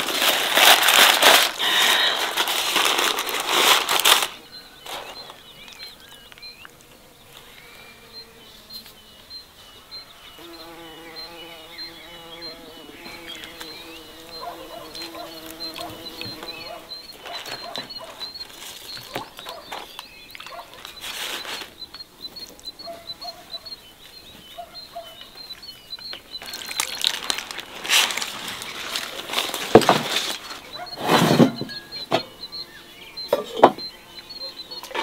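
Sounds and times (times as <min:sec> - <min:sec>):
rushing and rustling noises: 0:00.0 - 0:05.2, 0:26.5 - 0:31.6
low bird calls: 0:01.6 - 0:35.0
small bird chirping: 0:03.2 - 0:35.0.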